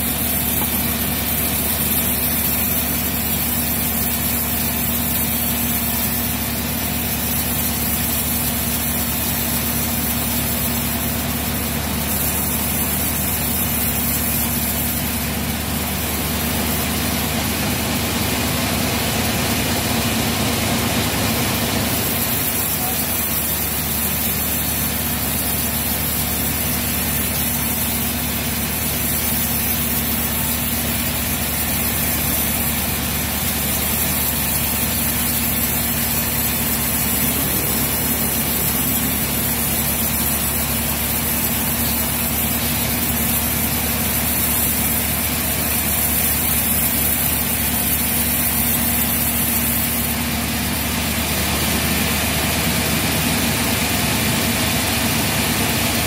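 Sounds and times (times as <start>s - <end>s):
low machine hum: 0.0s - 47.6s
band saw blade hissing through wood: 33.4s - 47.7s.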